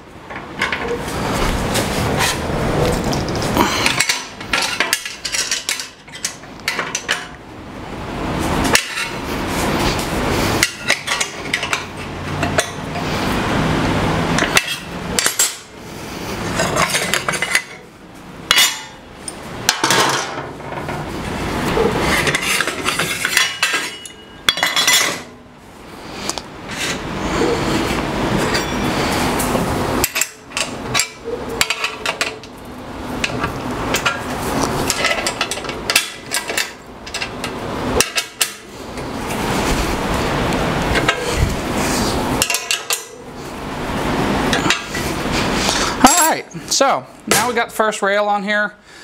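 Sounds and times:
metal scraping: 0:00.3 - 0:07.2, 0:18.5 - 0:25.4
metal tools clinking and rattling: 0:03.0 - 0:07.4, 0:08.7 - 0:09.2, 0:10.6 - 0:12.8, 0:14.4 - 0:15.7, 0:16.5 - 0:17.9, 0:18.5 - 0:21.0, 0:22.0 - 0:25.4, 0:28.4 - 0:29.2, 0:30.0 - 0:32.5, 0:33.2 - 0:38.7, 0:42.4 - 0:43.2.

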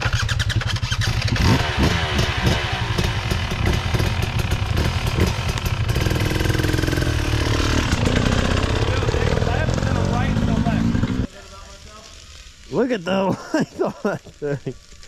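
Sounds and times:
dirt bike engine revving: 0:00.0 - 0:11.3.

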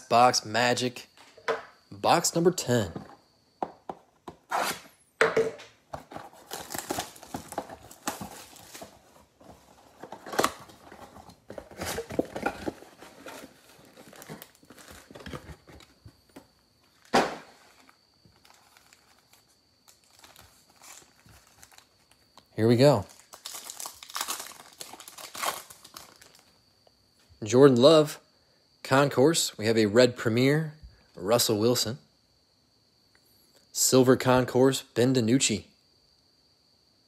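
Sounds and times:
card packs rustling: 0:06.0 - 0:26.5
cardboard box tearing: 0:06.2 - 0:08.9.

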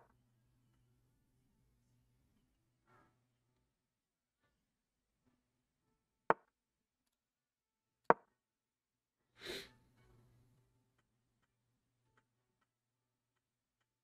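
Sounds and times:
sniff through the nose: 0:09.4 - 0:09.8.

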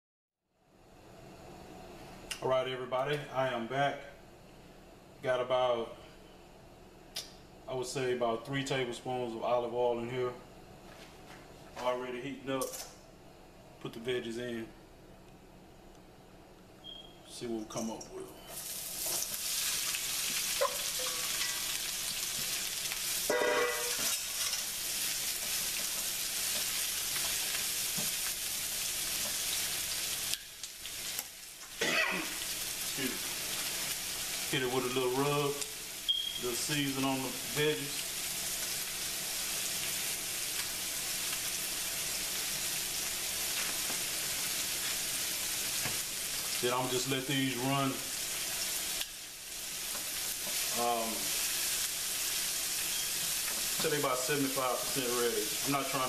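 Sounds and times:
vegetables sizzling in oil: 0:18.5 - 0:56.0
tongs scraping a pan: 0:23.6 - 0:28.2.

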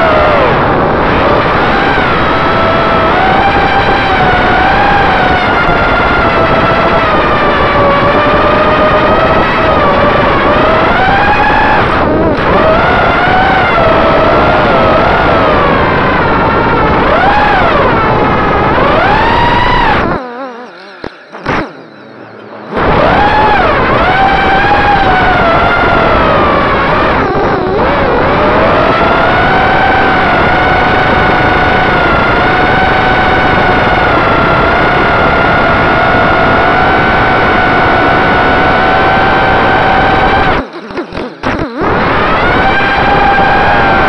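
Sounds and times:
quadcopter motors whining: 0:00.0 - 0:44.0
rush of air noise: 0:22.7 - 0:44.0.

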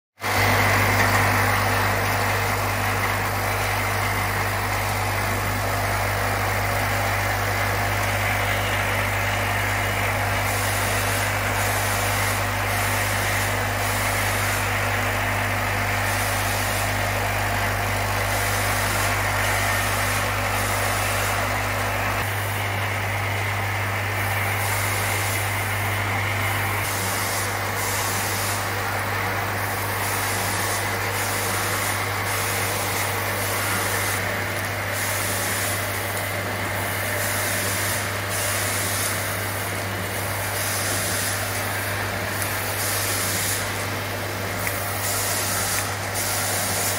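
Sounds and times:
cartoning machine running: 0:00.2 - 0:46.9.

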